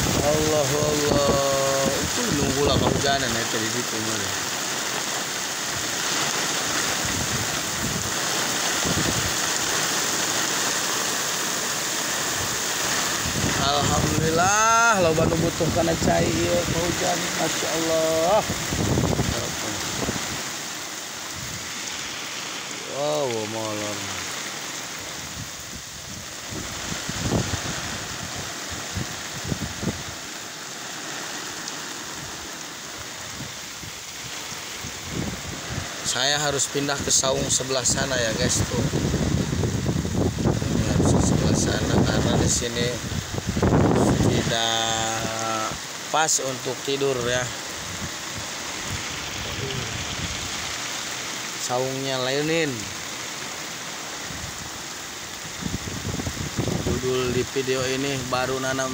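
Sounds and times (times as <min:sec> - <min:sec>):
wind buffeting microphone: 0:00.0 - 0:03.2, 0:06.6 - 0:09.7, 0:12.2 - 0:20.7, 0:21.3 - 0:21.9, 0:25.0 - 0:30.2, 0:33.0 - 0:36.0, 0:37.3 - 0:44.6, 0:47.7 - 0:51.1, 0:55.4 - 0:57.5
heavy rain downpour: 0:00.0 - 0:58.9.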